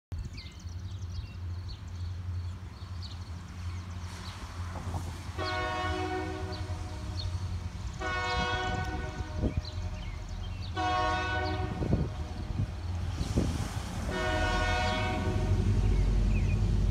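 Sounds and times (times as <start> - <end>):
locomotive rumble: 0.6 - 16.9
train air horn blasts: 5.4 - 12.4, 14.1 - 15.8.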